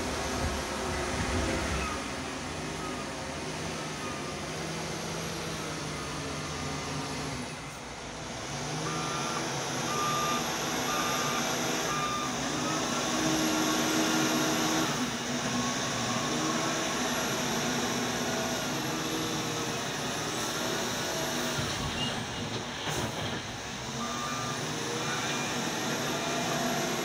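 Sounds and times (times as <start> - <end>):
wheel loader diesel engine: 0.0 - 27.0
reversing alarm beeping: 8.8 - 22.1, 23.9 - 27.0.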